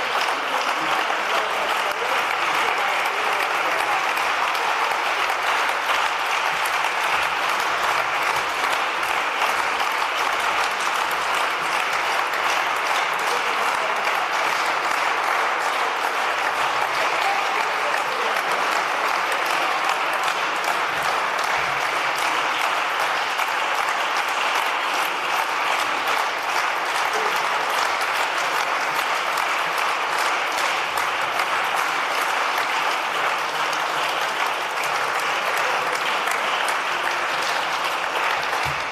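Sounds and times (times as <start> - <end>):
large audience applauding: 0.0 - 38.9.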